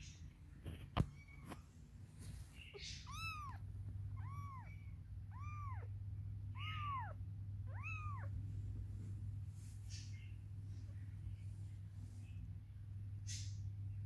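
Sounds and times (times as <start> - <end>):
steady low hum: 0.0 - 14.0
kitten mewing: 2.8 - 8.3.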